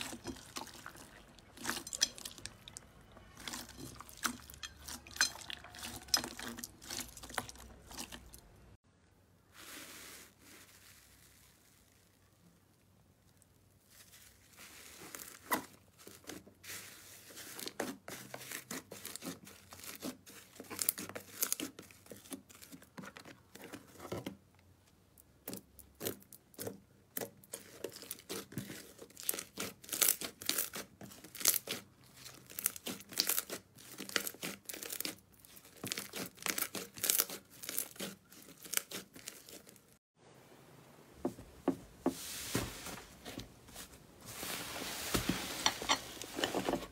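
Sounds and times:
slime crackling and popping: 25.5s - 39.9s.

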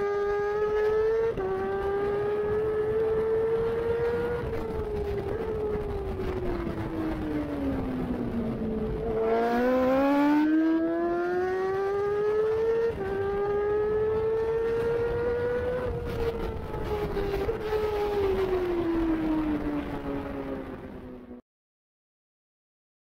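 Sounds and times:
motorcycle engine at high revs: 0.0s - 6.3s, 8.1s - 18.2s.

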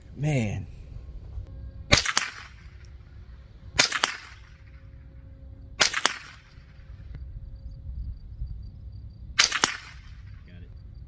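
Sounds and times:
rifle shots cracking: 1.9s - 3.1s, 3.8s - 4.9s, 5.8s - 7.1s, 9.4s - 10.4s.

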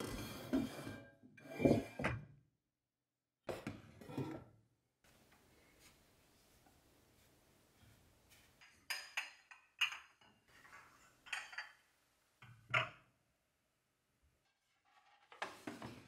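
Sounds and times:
ceramic plates clinking: 8.6s - 11.8s.

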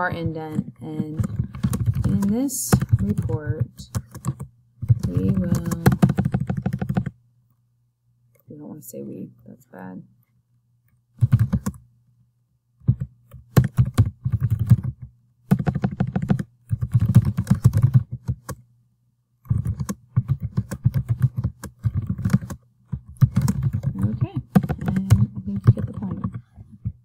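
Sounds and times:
typing on computer keyboard: 0.0s - 7.1s, 11.2s - 11.8s, 12.8s - 18.6s, 19.4s - 27.0s.

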